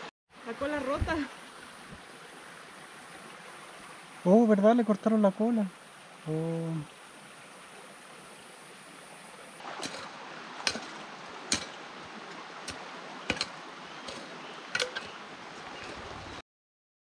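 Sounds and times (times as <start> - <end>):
hand tool knocking in stony dirt: 9.6 - 16.2.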